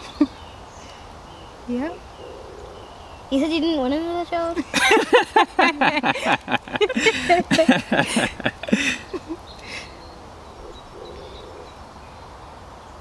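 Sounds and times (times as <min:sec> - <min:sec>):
people laughing: 0:04.6 - 0:09.8.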